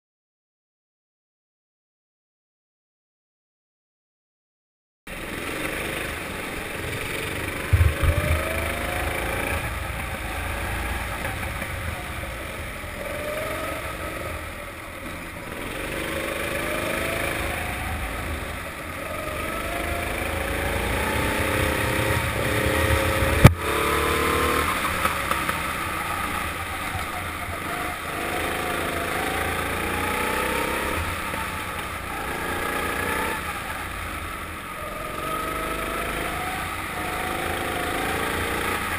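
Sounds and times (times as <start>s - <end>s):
kart engine revving: 5.1s - 38.9s
low rumble: 7.6s - 9.0s
knocks: 7.7s - 8.5s.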